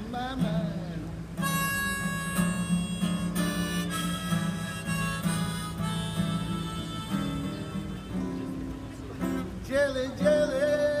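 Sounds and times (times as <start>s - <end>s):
strummed acoustic guitar: 0.0s - 11.0s
harmonica held notes: 1.4s - 8.7s.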